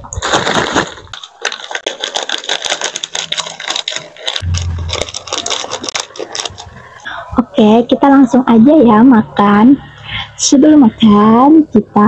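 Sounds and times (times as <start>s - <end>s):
plastic packet crinkling: 0.0s - 7.0s
short low hum: 4.4s - 5.3s.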